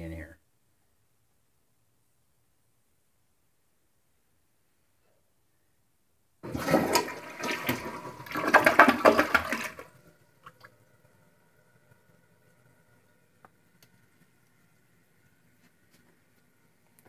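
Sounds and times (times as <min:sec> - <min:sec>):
toilet flushing: 0:06.4 - 0:10.8.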